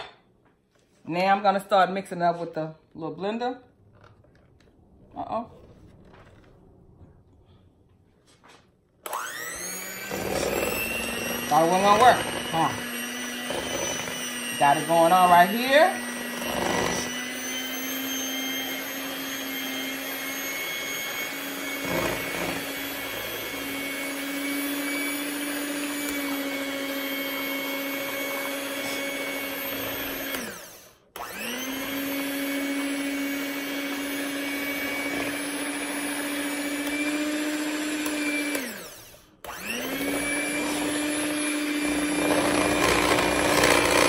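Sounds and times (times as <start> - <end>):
electric hand mixer whining: 9.0 - 44.0.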